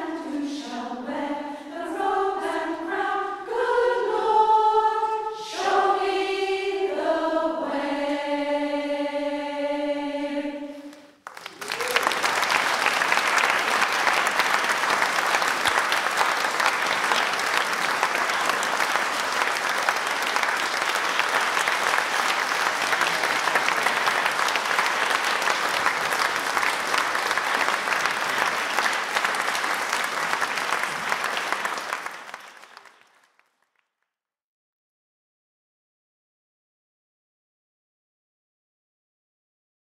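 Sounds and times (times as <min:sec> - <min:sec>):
audience applauding: 0:11.2 - 0:33.9.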